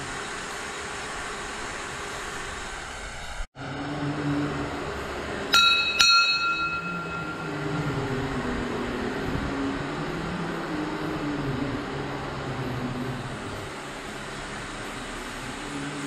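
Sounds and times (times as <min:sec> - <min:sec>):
hanging temple bell struck: 0:05.4 - 0:09.1.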